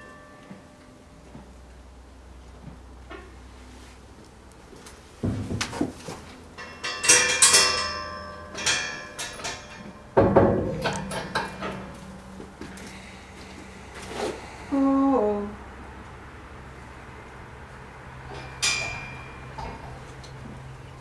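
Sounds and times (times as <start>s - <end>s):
metal gate clanking and rattling: 6.5s - 13.0s, 18.2s - 20.4s
ringing metallic clinks: 6.6s - 13.0s, 18.3s - 20.0s.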